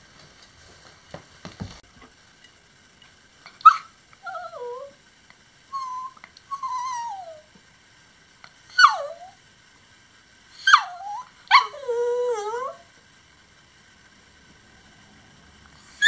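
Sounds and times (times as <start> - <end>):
soft knocks: 1.1 - 1.8
dog yelp: 3.6 - 4.9, 5.7 - 7.4, 8.7 - 9.4, 10.6 - 12.8
dog whining: 3.6 - 5.0, 5.7 - 7.5, 8.7 - 9.4, 10.6 - 12.9.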